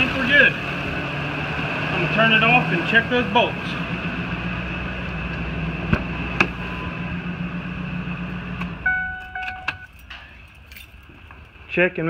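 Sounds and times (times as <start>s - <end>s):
truck engine idling: 0.0s - 11.6s
electronic chime beeps: 8.8s - 9.9s.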